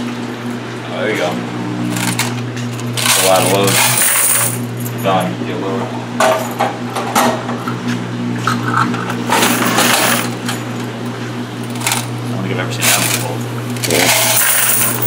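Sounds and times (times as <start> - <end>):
low machine hum: 0.0 - 15.0
coins jingling in metal box: 3.0 - 4.6, 13.9 - 15.0.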